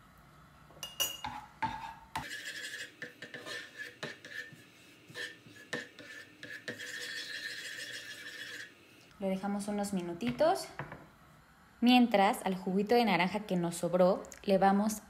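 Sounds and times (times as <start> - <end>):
spatula scraping frying pan: 1.2 - 8.9.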